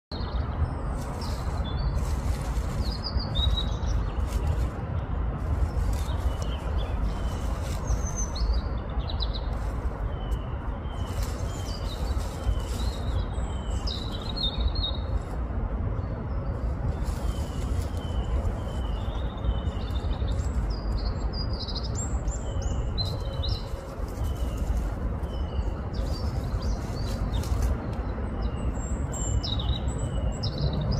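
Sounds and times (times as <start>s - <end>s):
small songbirds chirping: 0.1s - 30.9s
steady low rumble: 0.1s - 30.9s
scratchy rustles: 0.9s - 8.6s, 9.3s - 14.4s, 16.6s - 19.1s, 23.0s - 28.0s.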